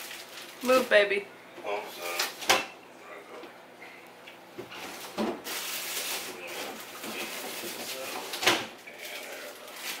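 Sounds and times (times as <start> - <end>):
rummaging at a refrigerator: 4.6 - 10.0.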